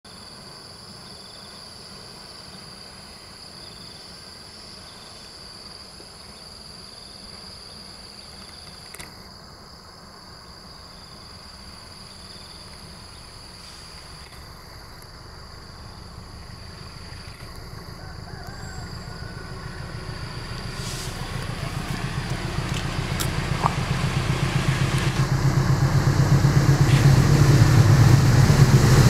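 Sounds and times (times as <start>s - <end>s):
insect chorus: 0.1s - 29.0s
low rumble: 14.8s - 29.0s.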